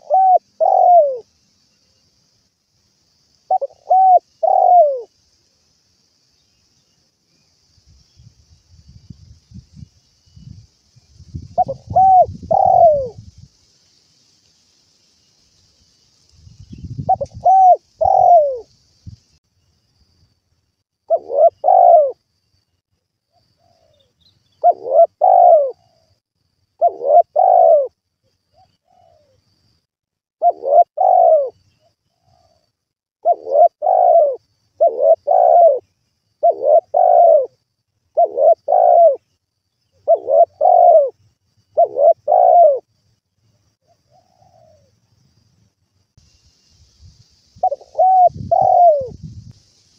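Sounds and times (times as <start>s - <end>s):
dove cooing: 0.0s - 1.3s, 3.5s - 5.1s, 11.6s - 13.2s, 17.1s - 18.7s, 21.1s - 22.2s, 23.6s - 26.0s, 26.8s - 28.0s, 28.8s - 29.4s, 30.4s - 31.6s, 33.2s - 35.8s, 36.4s - 37.6s, 38.2s - 39.2s, 40.0s - 41.2s, 41.8s - 42.9s, 44.1s - 44.9s, 47.6s - 49.2s.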